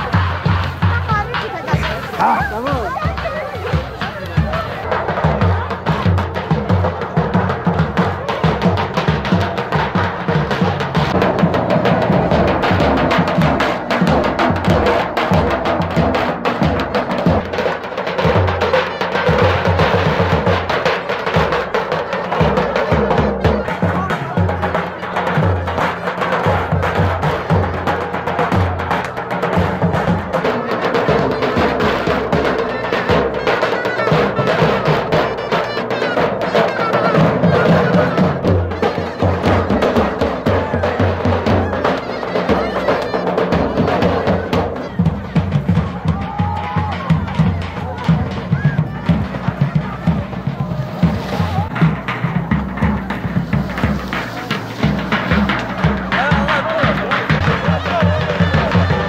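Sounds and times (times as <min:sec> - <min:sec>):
bass drum beaten with sticks: 0:00.0 - 0:59.0
wavering reed pipe melody: 0:31.1 - 0:45.8.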